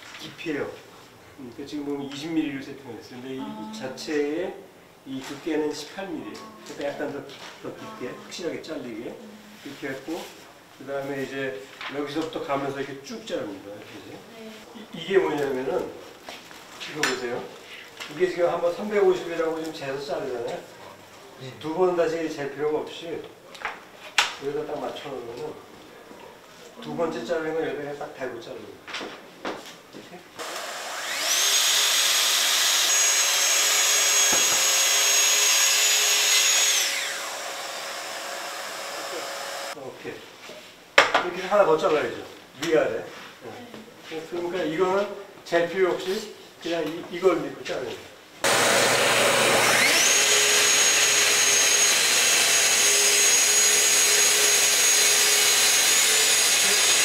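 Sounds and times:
circular saw whining and cutting: 30.4 - 39.8, 48.4 - 57.0
dust extractor hissing: 30.4 - 39.8, 48.4 - 57.0.

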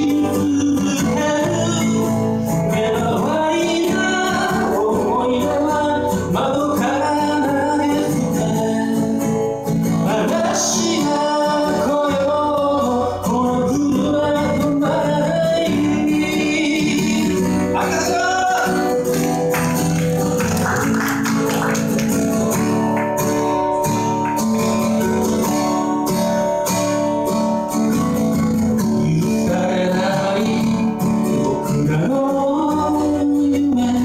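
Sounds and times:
man singing: 0.0 - 19.5, 28.8 - 34.0
acoustic guitar: 0.0 - 34.0.

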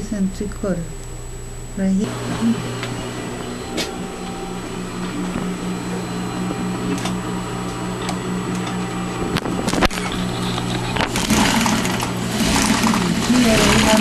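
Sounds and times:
sewing machine stitching: 9.9 - 14.0.

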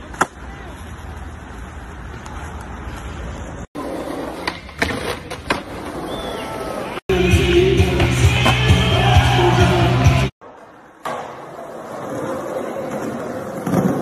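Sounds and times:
skateboard wheels rolling on concrete: 0.0 - 14.0
skateboard grinding and clacking: 3.8 - 6.0, 10.4 - 14.0
music: 7.1 - 10.3.

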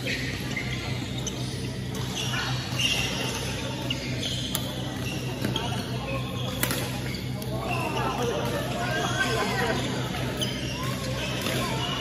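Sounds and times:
shoe squeaks on wooden floor: 0.1 - 8.1, 10.3 - 12.0
racket hitting shuttlecock: 6.6 - 6.9.

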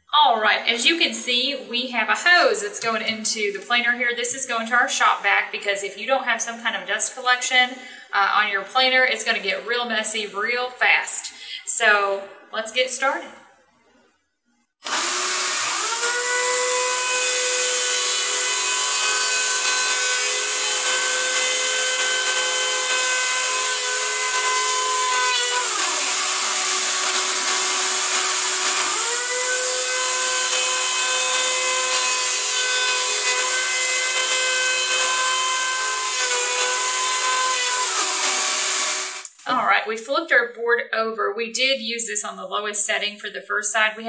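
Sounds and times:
electric planer motor whine: 14.9 - 39.2.

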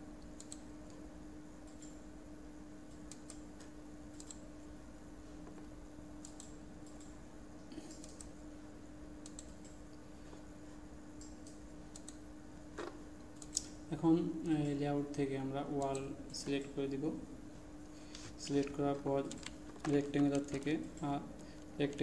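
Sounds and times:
computer mouse clicks: 0.2 - 1.0, 1.7 - 2.0, 2.9 - 4.4, 6.2 - 8.3, 9.2 - 9.8, 11.2 - 12.2, 12.8 - 13.8.

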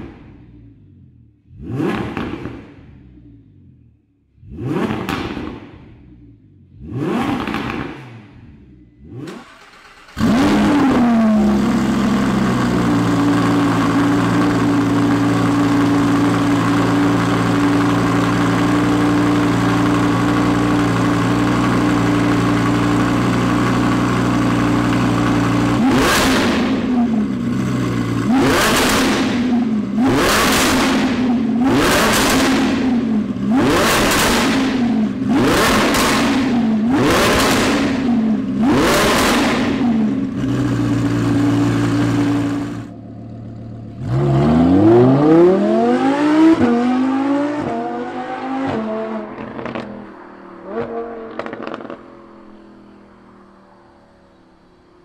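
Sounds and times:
engine revving throttle blips: 0.0 - 43.0
car engine idling: 8.3 - 44.2.

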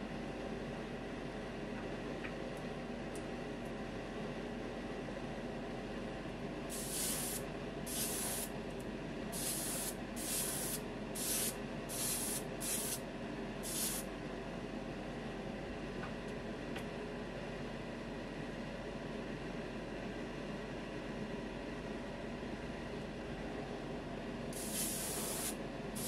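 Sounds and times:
steady low hum: 0.0 - 26.0
airbrush spraying hiss: 6.7 - 8.5, 9.4 - 13.0, 13.6 - 14.0, 24.6 - 26.0.

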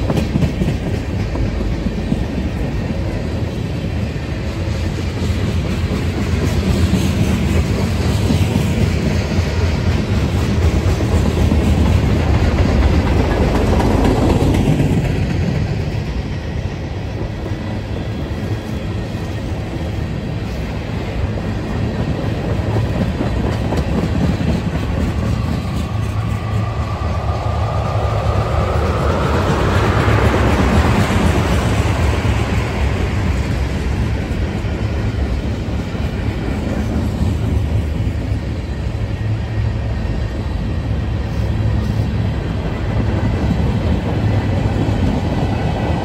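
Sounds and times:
freight train wheels on rail: 0.0 - 46.0
rising whine: 25.4 - 31.0.

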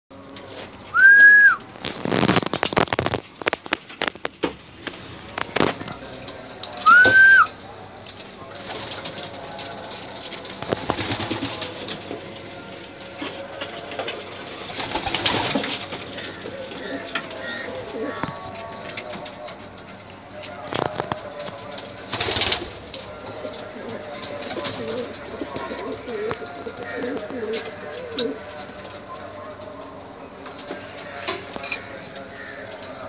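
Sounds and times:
pigeons flapping wings: 6.8 - 12.1, 13.6 - 16.3, 21.8 - 28.3.

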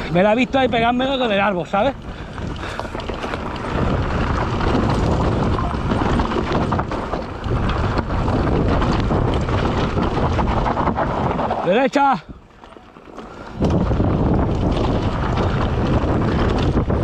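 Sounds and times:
wind noise on microphone: 0.0 - 12.6, 13.2 - 17.0
bike rattling and knocking: 0.0 - 17.0
tyres crunching over stones: 0.0 - 17.0.

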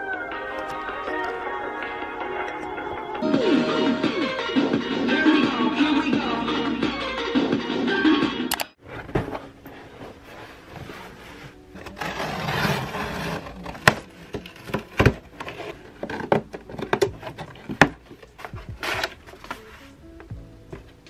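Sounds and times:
cardboard scraping rustle: 8.8 - 20.0.

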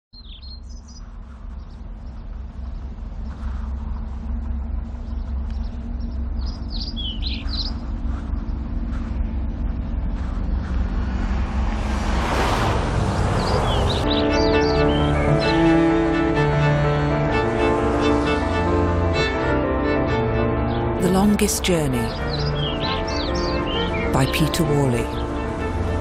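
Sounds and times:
birds chirping: 0.2 - 15.9, 20.6 - 26.0
vehicle engine rumble: 0.2 - 20.9
rush of passing vehicle: 8.7 - 19.5.

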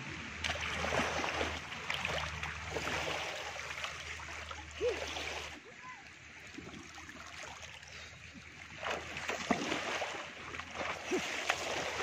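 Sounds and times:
seawater splashing around legs: 8.6 - 12.0.

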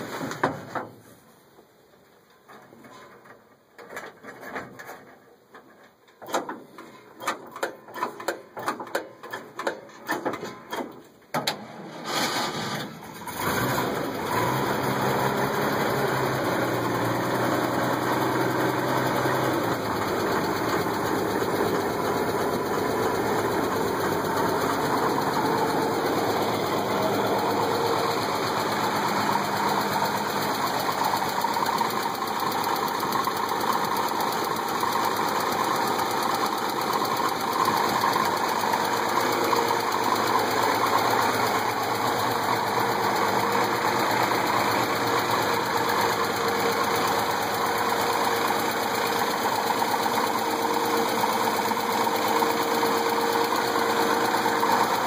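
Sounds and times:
engine cranking on starter: 6.2 - 55.0
engine idling: 13.1 - 55.0.

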